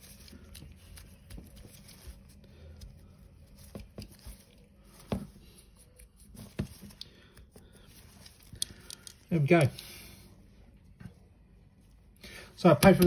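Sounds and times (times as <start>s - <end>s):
hands handling tools: 0.0s - 9.9s.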